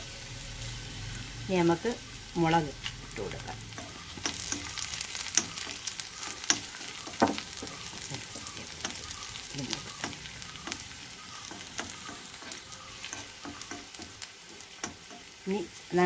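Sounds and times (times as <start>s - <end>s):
food sizzling in hot oil: 0.0s - 16.0s
spoon scraping pan: 3.0s - 15.4s.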